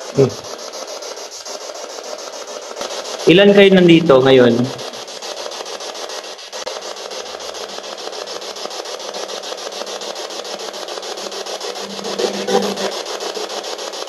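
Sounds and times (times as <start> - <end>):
pulsing radio static: 2.8 - 13.8.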